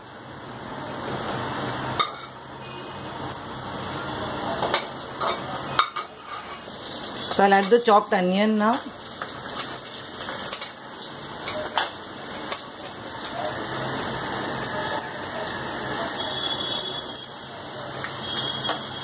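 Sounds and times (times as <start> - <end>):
onions sizzling in hot fat: 0.0 - 19.0.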